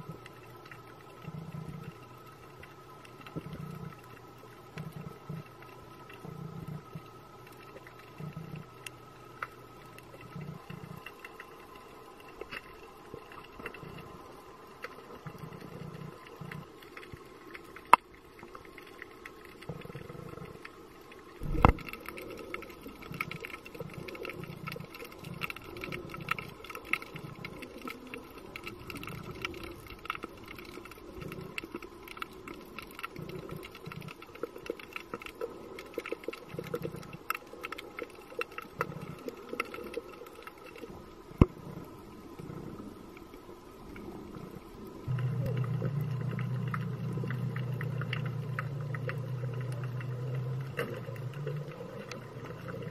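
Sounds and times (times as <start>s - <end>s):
underwater crackle of clicks: 0.0s - 52.9s
muffled low bumps: 21.4s - 21.9s.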